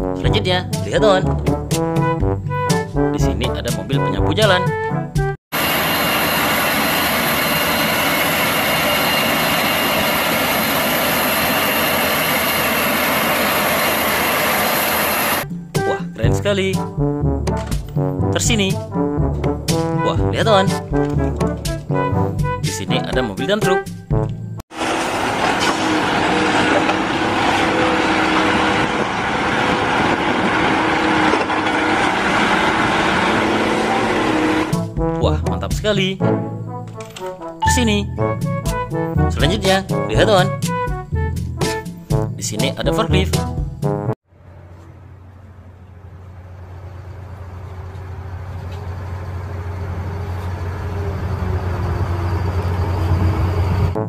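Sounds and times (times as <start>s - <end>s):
heavy diesel truck engine droning: 5.6s - 22.6s, 24.2s - 35.1s, 44.3s - 54.0s.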